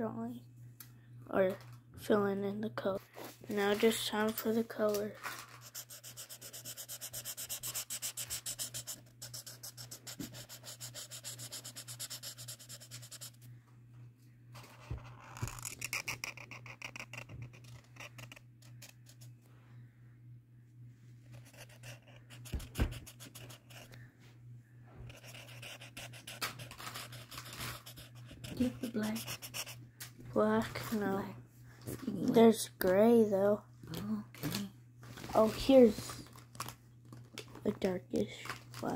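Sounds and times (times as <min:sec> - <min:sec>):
steady low hum: 0:00.0 - 0:38.9
marker squeaking on paper: 0:14.7 - 0:19.3, 0:21.4 - 0:24.0.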